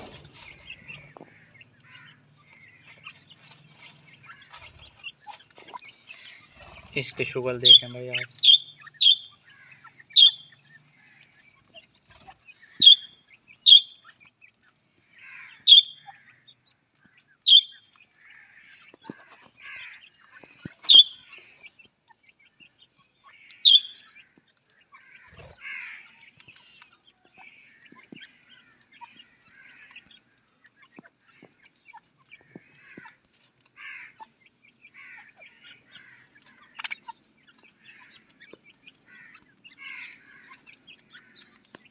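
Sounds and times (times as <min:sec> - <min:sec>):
bird chattering: 0:00.0 - 0:14.3, 0:15.2 - 0:16.4, 0:17.3 - 0:21.7, 0:22.8 - 0:24.2
sharp bird calls: 0:00.0 - 0:41.9.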